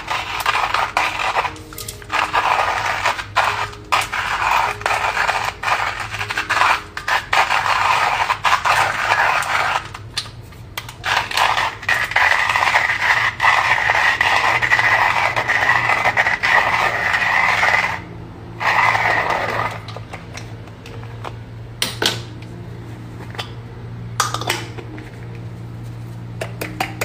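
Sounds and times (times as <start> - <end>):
hand-crank coffee grinder grinding: 0.0 - 20.4.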